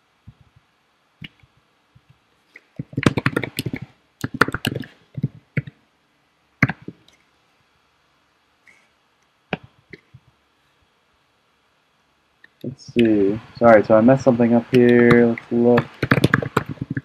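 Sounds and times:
computer keyboard typing: 2.8 - 5.7, 14.7 - 17.0.

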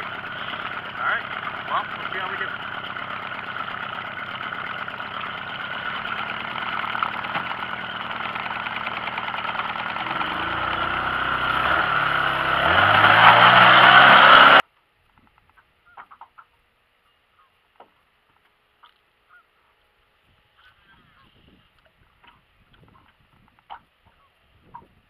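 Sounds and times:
outboard motor running: 0.0 - 14.6
wind: 0.0 - 25.0.

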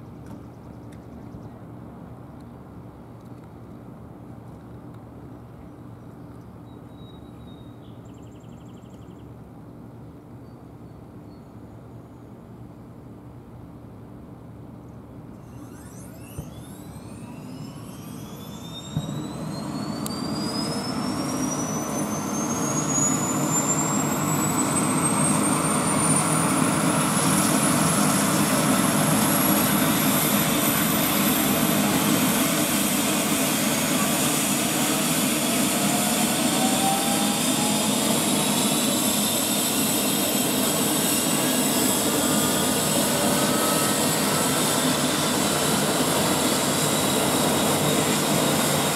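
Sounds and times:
helicopter turbine whine: 15.0 - 48.9
faint rising tone: 15.3 - 48.9.

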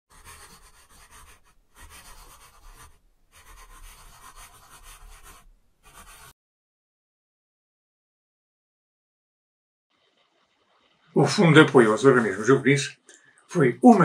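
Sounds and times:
scribbling on paper: 0.1 - 6.3.

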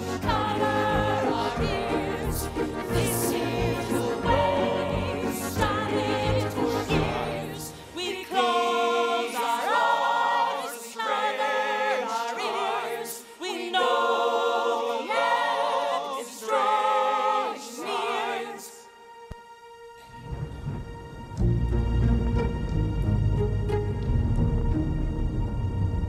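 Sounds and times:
choir singing a cappella: 0.0 - 19.3.

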